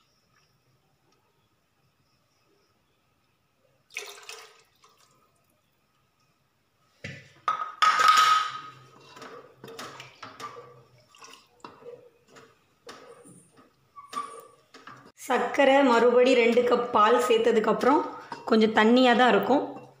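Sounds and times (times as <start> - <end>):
milk pouring: 3.8 - 5.6, 9.8 - 11.8
wooden spatula stirring liquid: 8.6 - 15.2.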